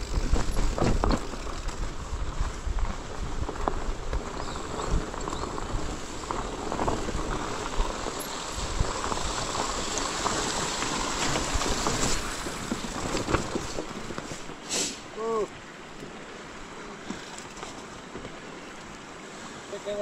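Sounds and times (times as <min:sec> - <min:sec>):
wind on microphone: 0:00.0 - 0:14.6
bike tyres on rocky ground: 0:00.0 - 0:20.0.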